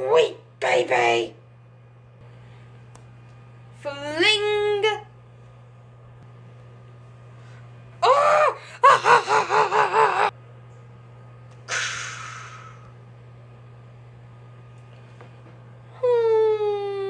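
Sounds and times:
breathy hiss: 11.7 - 12.9.

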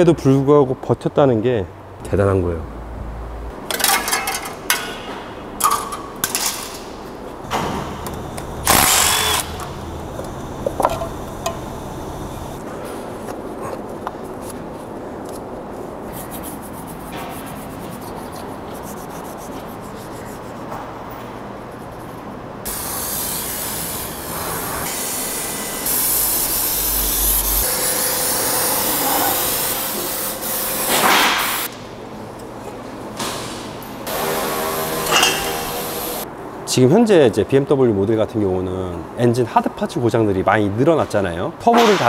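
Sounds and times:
rubbing and handling noise: 13.1 - 20.9.

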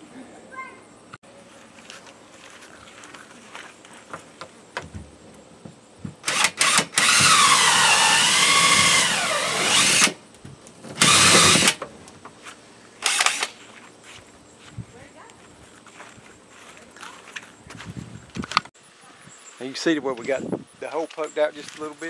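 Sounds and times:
cordless drill with hole saw: 6.2 - 10.2, 11.0 - 11.8, 13.0 - 13.6.

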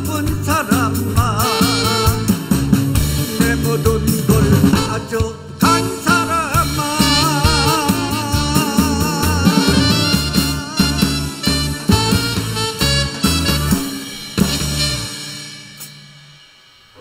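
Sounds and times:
man singing with vibrato: 0.0 - 2.4, 3.1 - 12.3
band with saxophone: 1.2 - 3.4, 4.3 - 15.8.

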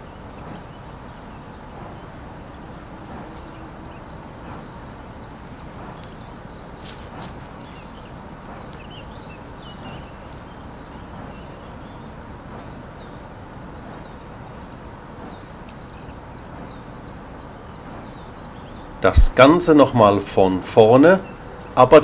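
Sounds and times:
small birds chirping: 0.0 - 22.0
steady low rumble: 0.0 - 22.0
faint clicks: 0.4 - 11.8, 15.2 - 18.8.

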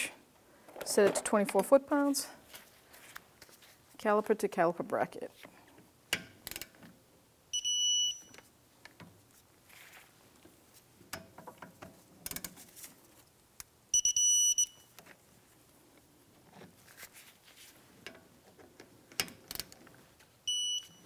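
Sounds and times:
torque wrench beeping: 20.5 - 21.0.

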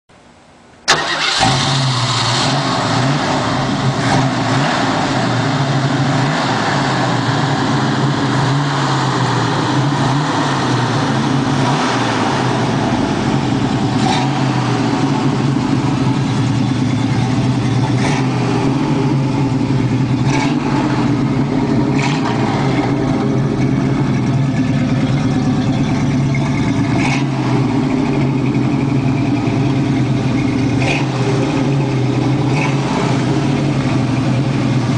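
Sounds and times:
car engine starting and revving: 0.9 - 34.9.

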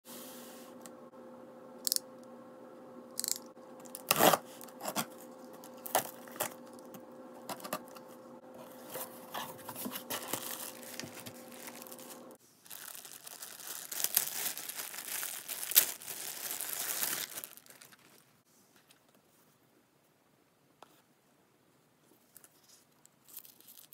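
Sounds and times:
cardboard rustling and knocking: 8.7 - 11.4
plastic bag crinkling and tearing: 8.8 - 18.3, 23.2 - 23.9.

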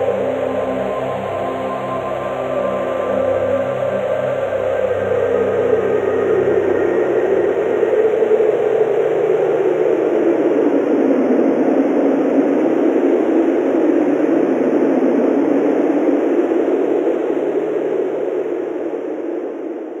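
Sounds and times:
faint gentle music: 0.0 - 9.9
strong wind rushing: 4.5 - 20.0.

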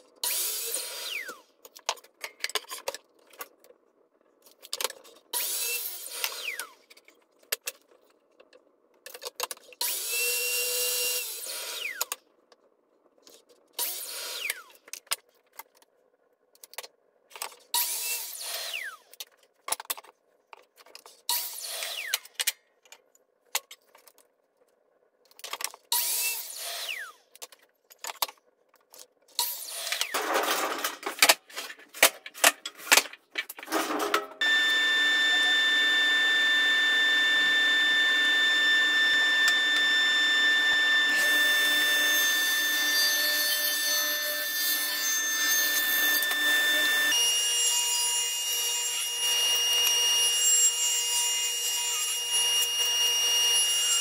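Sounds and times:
miter saw cutting wood: 33.7 - 54.0.

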